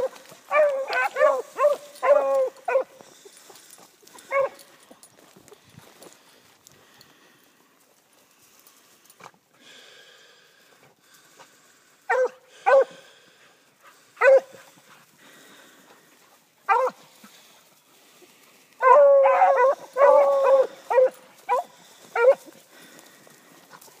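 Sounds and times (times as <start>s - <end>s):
hound dogs barking: 0.0s - 4.8s, 12.1s - 13.1s, 13.9s - 14.8s, 16.6s - 17.5s, 18.8s - 22.9s
dogs baying: 0.0s - 5.3s, 12.1s - 13.2s, 13.8s - 17.5s, 18.8s - 24.0s.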